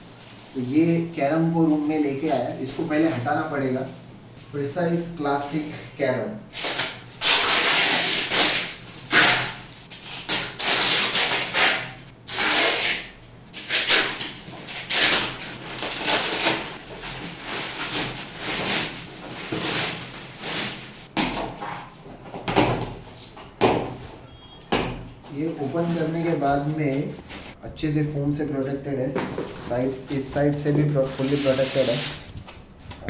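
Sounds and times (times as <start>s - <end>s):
plastic sack rustling and scraping: 14.7s - 21.8s.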